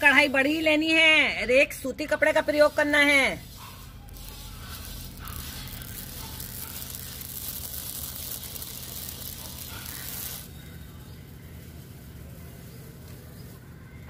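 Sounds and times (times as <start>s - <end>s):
cloth rubbing over pan: 0.0s - 10.7s
seeds popping in metal pan: 4.1s - 10.7s.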